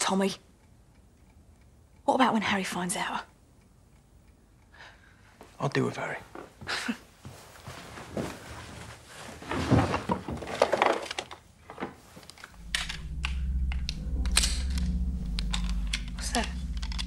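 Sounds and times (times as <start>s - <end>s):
rustling and soft knocks: 7.2s - 17.0s
low steady hum: 12.4s - 17.0s.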